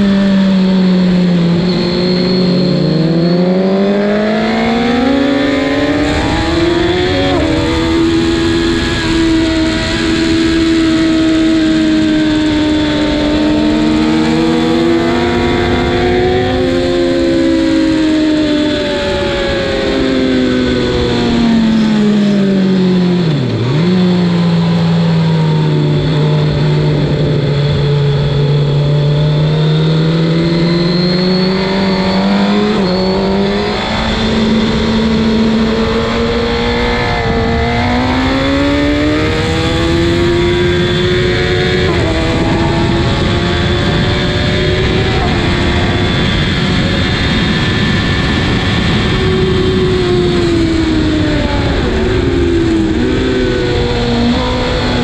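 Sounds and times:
constant rushing noise: 0.0s - 55.0s
motorcycle engine at speed: 0.0s - 55.0s.

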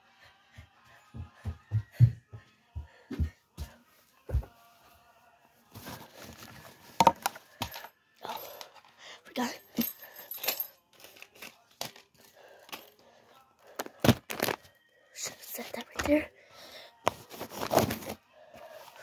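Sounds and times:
objects clicking and knocking: 7.0s - 8.9s.

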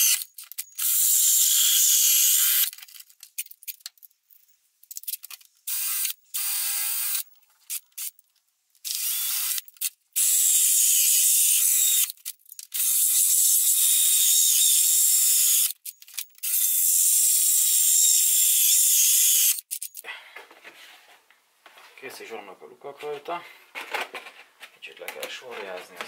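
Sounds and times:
drill hole saw cutting plastic: 0.0s - 2.7s, 5.7s - 8.1s, 8.8s - 15.8s, 16.4s - 19.7s.

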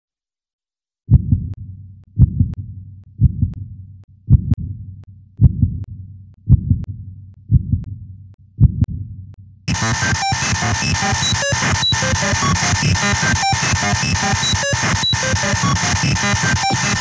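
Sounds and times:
low heartbeat-like double thump: 1.1s - 1.6s, 2.2s - 2.6s, 3.2s - 3.6s, 4.3s - 4.8s, 5.4s - 5.9s, 6.5s - 8.0s, 8.6s - 9.2s.

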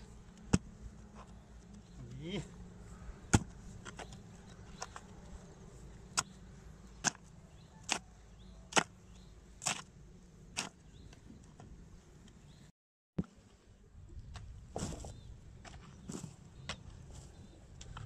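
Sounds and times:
hoe chopping into soil: 3.3s - 4.2s, 7.0s - 8.1s, 8.7s - 9.0s, 9.6s - 9.9s, 10.5s - 10.9s.

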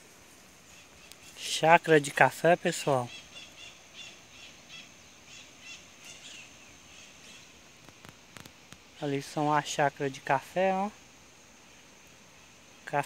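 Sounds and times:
faint bird calls: 0.6s - 1.6s, 2.2s - 9.0s.

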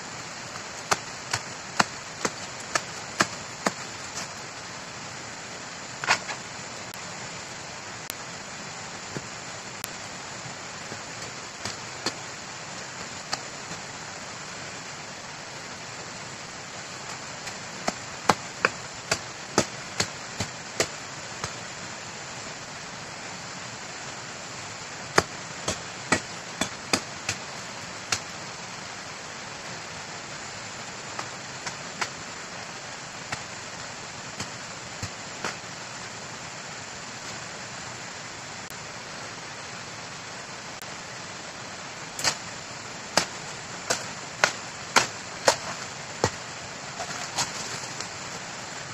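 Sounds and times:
steady hiss: 0.0s - 48.9s.

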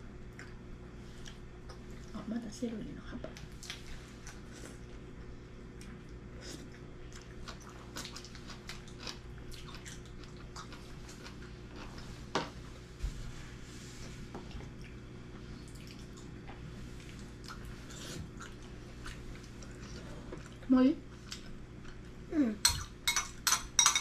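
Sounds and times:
steady low hum: 0.0s - 24.0s
chewing: 5.7s - 12.0s, 15.6s - 22.1s
spoon and chopsticks tapping bowls: 22.6s - 24.0s.

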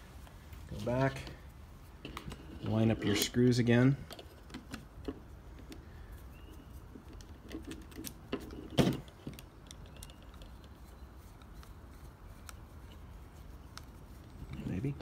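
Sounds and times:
metal and plastic parts clicking: 7.0s - 10.8s.

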